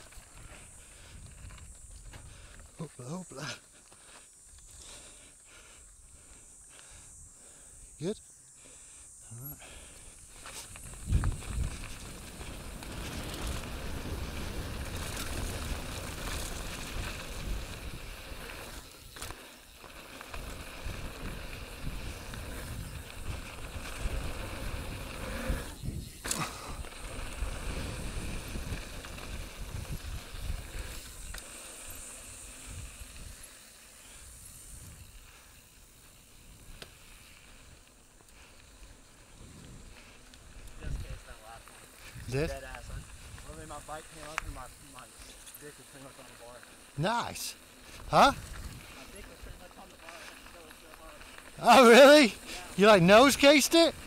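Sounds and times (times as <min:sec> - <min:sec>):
wind rumbling on microphone: 0:00.0 - 0:02.7, 0:10.4 - 0:18.9, 0:20.3 - 0:33.5, 0:39.1 - 0:45.2, 0:47.8 - 0:49.7
bike rattling: 0:00.0 - 0:07.0, 0:09.7 - 0:54.0
tyres crunching over dirt and rocks: 0:10.4 - 0:20.9.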